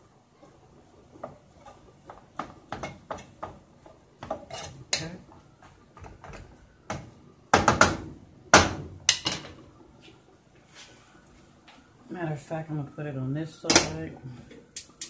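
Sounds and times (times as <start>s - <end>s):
wooden spoon knocking a pot: 2.0s - 5.2s, 5.9s - 9.5s.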